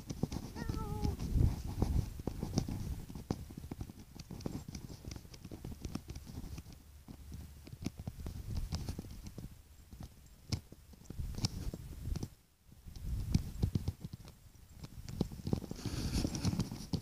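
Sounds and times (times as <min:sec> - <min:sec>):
low rumble of handled phone: 0:00.0 - 0:09.5.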